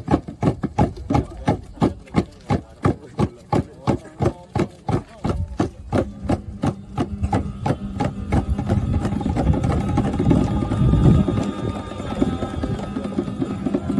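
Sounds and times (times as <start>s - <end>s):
sharp drum beats: 0.0s - 13.9s
low rumbling noise: 5.4s - 13.9s.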